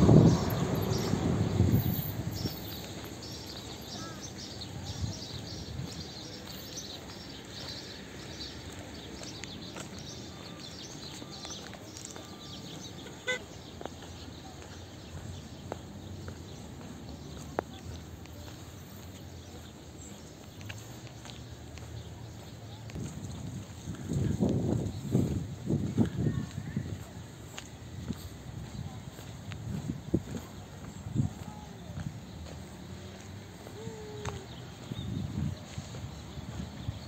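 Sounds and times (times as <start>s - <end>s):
passing vehicle rumble: 0.0s - 20.1s
birds chirping: 0.0s - 25.5s.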